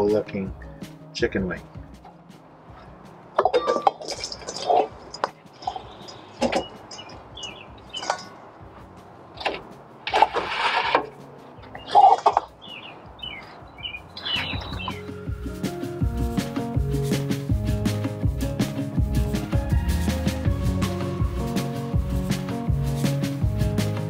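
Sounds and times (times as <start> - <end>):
birds chirping: 4.4 - 9.9, 11.2 - 17.2.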